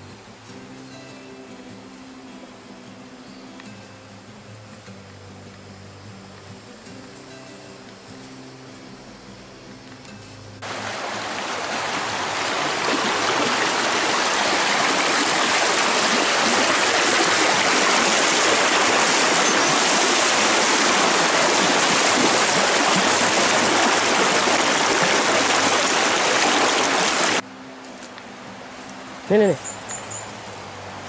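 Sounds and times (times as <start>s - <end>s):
river rushing over rocks: 10.6s - 27.6s.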